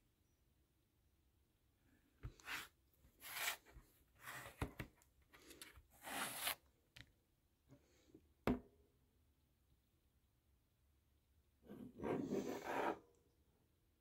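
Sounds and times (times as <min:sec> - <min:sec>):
tablet scraping on tabletop: 0:02.4 - 0:04.6, 0:06.0 - 0:06.6, 0:11.7 - 0:13.0.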